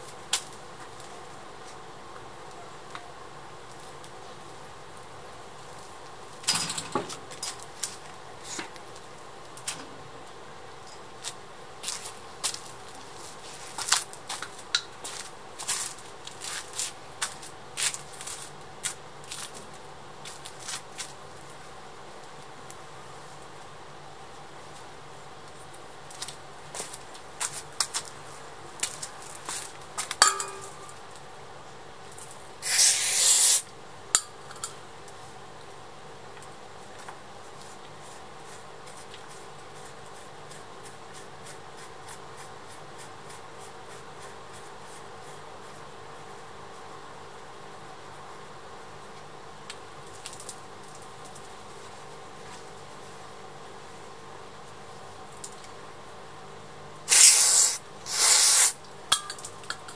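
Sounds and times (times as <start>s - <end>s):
metallic clink: 30.2s - 31.0s, 59.1s - 59.9s
aerosol can spraying: 32.6s - 33.6s, 57.1s - 58.8s.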